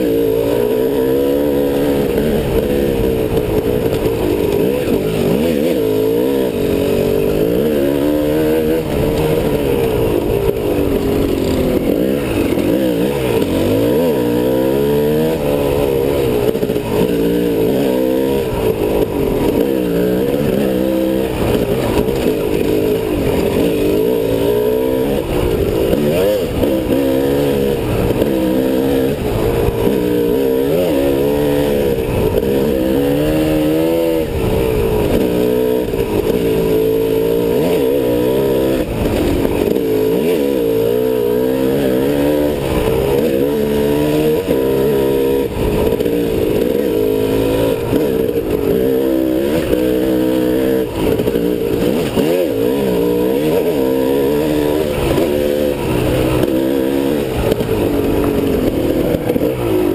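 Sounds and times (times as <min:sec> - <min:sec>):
off-road vehicle engine revving: 0:00.0 - 0:59.9.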